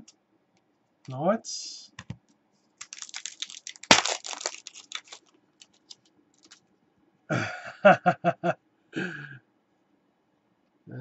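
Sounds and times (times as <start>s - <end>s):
cards clicking: 2.8s - 6.6s
wrapper tearing and crinkling: 2.8s - 6.6s.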